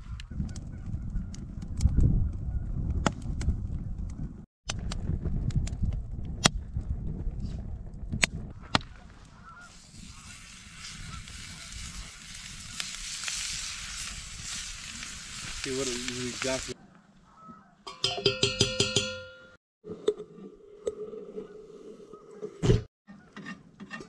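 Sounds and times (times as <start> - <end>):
campfire crackling and popping: 9.7 - 16.8
meat sizzling on grill: 9.7 - 16.8.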